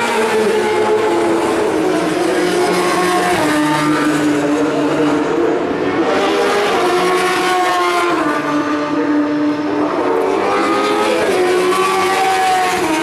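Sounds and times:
racing motorcycles passing: 0.0s - 13.0s.

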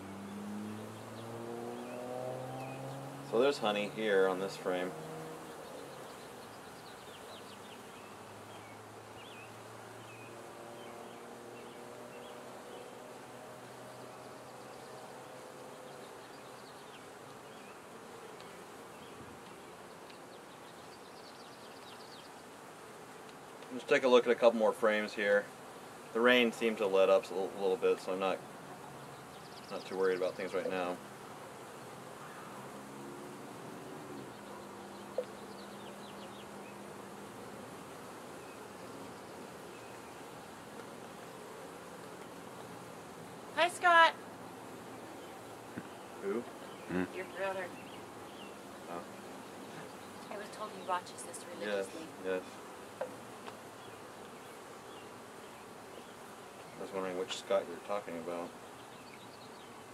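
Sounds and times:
bees buzzing: 0.0s - 59.9s.

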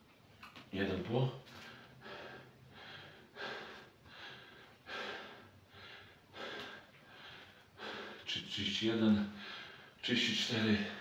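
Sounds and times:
man breathing heavily: 1.5s - 8.5s, 9.2s - 10.0s.

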